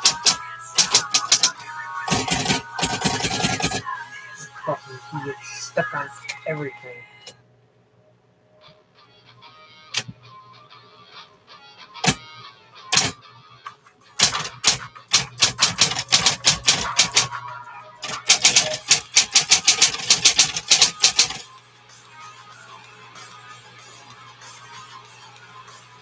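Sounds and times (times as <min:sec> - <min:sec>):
electric typewriter keystrokes: 0:00.0 - 0:03.8, 0:12.0 - 0:12.2, 0:12.9 - 0:13.2, 0:14.2 - 0:17.4, 0:18.0 - 0:21.4.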